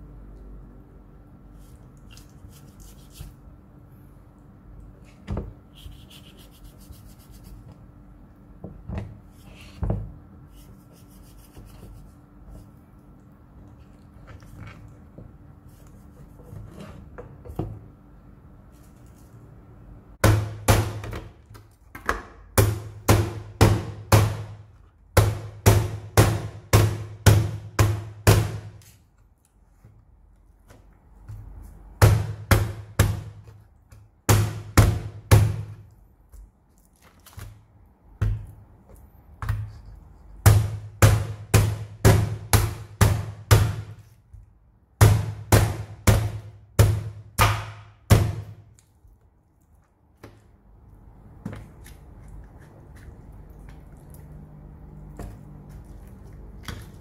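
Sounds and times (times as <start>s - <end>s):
cleaver chopping on wooden board: 20.2s - 21.3s, 22.1s - 24.6s, 34.3s - 35.8s, 40.4s - 44.0s, 45.0s - 48.6s.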